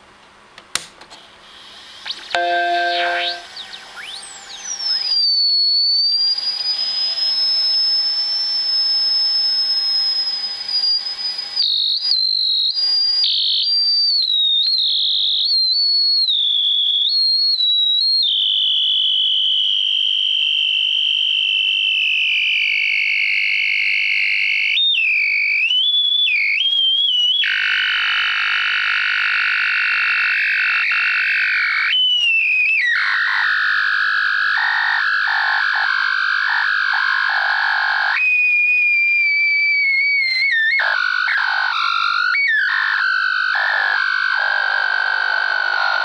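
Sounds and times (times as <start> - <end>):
high-pitched electronic whistle: 2.0 - 22.4, 29.7 - 44.3.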